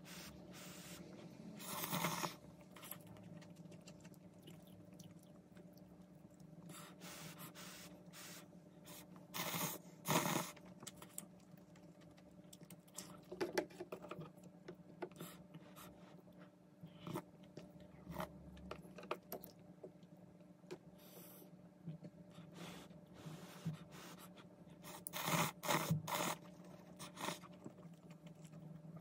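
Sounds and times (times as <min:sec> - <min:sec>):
slurping noodles: 0:01.4 - 0:02.9, 0:24.9 - 0:27.8
chewing: 0:01.6 - 0:06.9, 0:09.4 - 0:14.5, 0:24.8 - 0:29.0.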